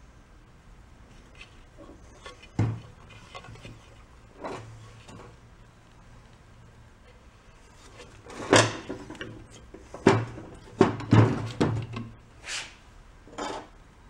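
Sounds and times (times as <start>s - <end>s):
short hiss: 12.4s - 12.8s.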